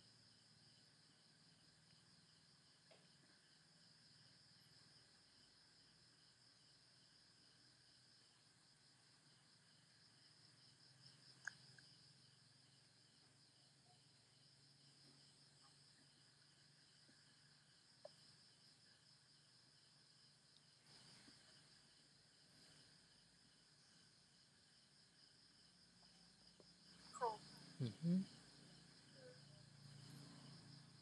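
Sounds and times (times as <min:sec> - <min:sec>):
crickets chirping: 0:00.0 - 0:31.0
faint ticks: 0:02.8 - 0:03.4, 0:11.1 - 0:12.0, 0:18.0 - 0:18.4, 0:20.5 - 0:21.8.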